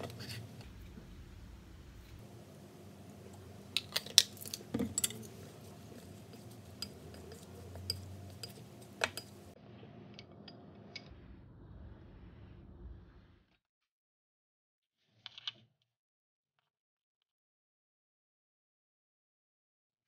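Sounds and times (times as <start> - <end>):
utensil clinking ceramic bowl: 3.1 - 9.6.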